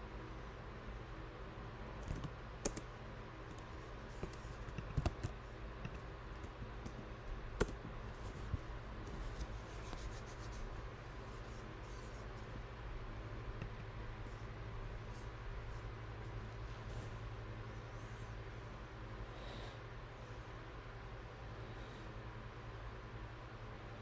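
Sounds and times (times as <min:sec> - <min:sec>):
low steady hum: 0:00.0 - 0:24.0
keyboard typing and clicks: 0:02.0 - 0:02.9, 0:03.5 - 0:07.0, 0:07.6 - 0:07.9.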